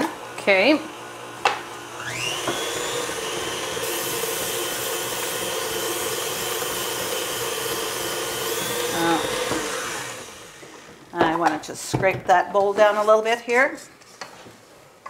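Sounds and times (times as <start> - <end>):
stand mixer motor whining: 0.1 - 11.0.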